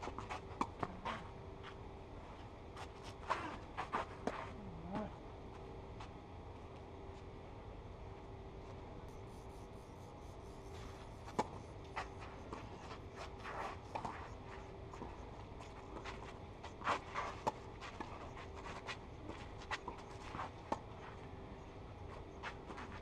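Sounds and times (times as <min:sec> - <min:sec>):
shoes sliding on clay: 0:09.2 - 0:20.6.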